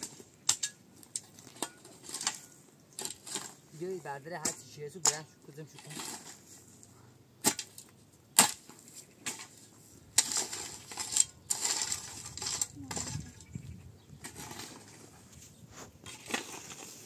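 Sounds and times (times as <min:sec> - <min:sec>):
objects rustling and scraping: 0:00.0 - 0:17.0.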